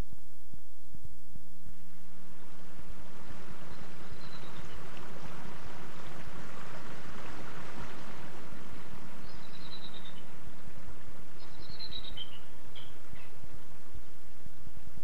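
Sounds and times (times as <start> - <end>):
stream flowing: 1.8 - 15.0
bird chirping: 3.6 - 4.9, 9.2 - 10.4, 11.4 - 13.5.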